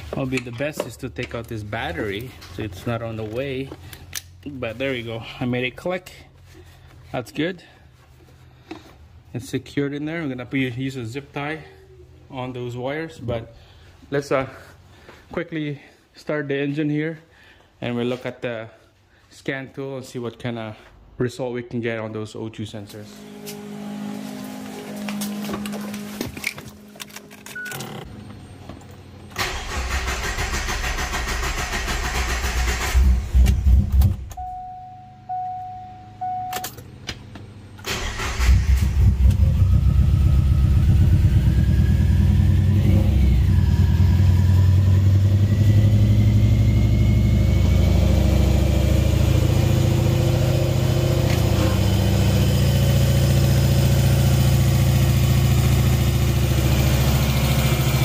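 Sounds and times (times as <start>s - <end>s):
engine starter cranking: 29.4s - 34.1s, 37.8s - 39.4s
short beeps: 34.4s - 36.8s
car engine idling: 38.0s - 58.0s.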